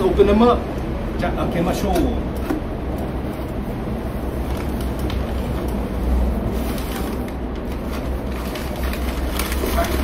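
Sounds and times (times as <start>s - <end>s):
packing paper rustling: 4.2s - 10.0s.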